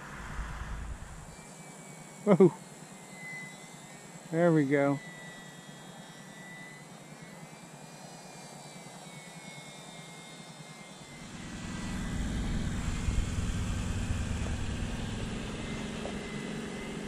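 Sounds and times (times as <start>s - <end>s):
low rumbling noise: 0.0s - 1.4s, 11.2s - 16.8s
electric motor and propeller whine: 0.0s - 17.0s.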